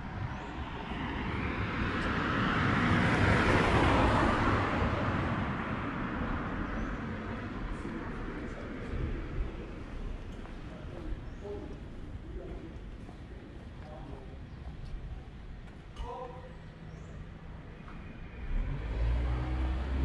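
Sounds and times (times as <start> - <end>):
vehicle driving past: 18.0 - 20.0.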